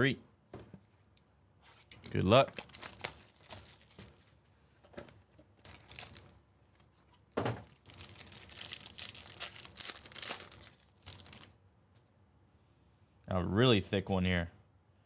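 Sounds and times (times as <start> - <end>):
box and pack rustling: 1.7 - 11.5
foil wrapper crinkling: 1.8 - 4.4, 5.6 - 6.4, 7.6 - 11.5
foil wrapper tearing: 1.8 - 4.4, 5.6 - 6.4, 7.6 - 11.5.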